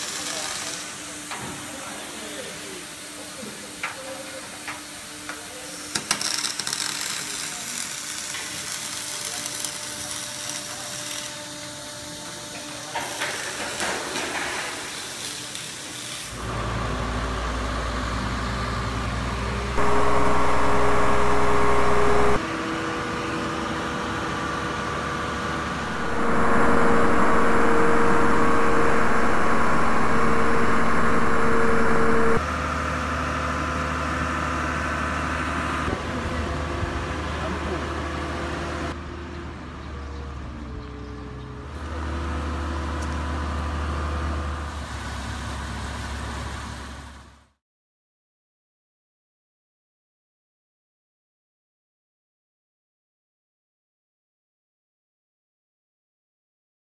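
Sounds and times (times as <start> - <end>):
arc welding crackling hiss: 0.0 - 16.4
engine running with whine: 16.4 - 47.4.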